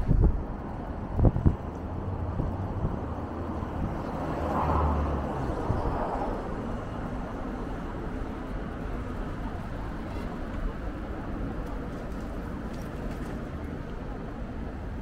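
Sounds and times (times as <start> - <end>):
traffic hum: 0.0 - 15.0
vehicle passing: 1.9 - 7.8.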